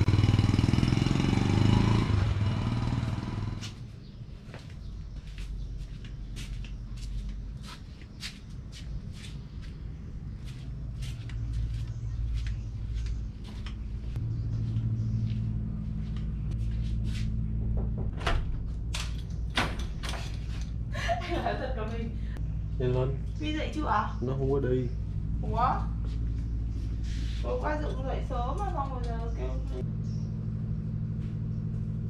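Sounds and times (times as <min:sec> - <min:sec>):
footsteps on paved path: 0:03.6 - 0:17.6, 0:25.0 - 0:29.3, 0:31.1 - 0:31.9
steady low rumble: 0:09.0 - 0:32.0
wooden door opening clatter: 0:17.7 - 0:20.5.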